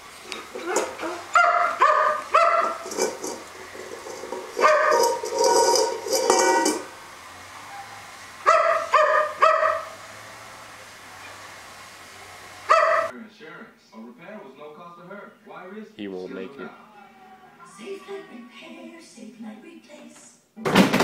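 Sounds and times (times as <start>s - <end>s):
dog barking in yaps: 0.6s - 3.4s, 4.6s - 6.8s, 7.6s - 10.0s, 12.7s - 13.1s.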